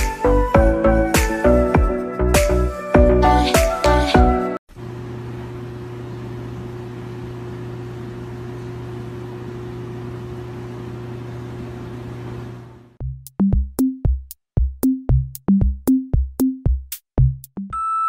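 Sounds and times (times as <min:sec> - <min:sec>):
music with drum beat: 0:00.0 - 0:04.4, 0:13.0 - 0:17.7.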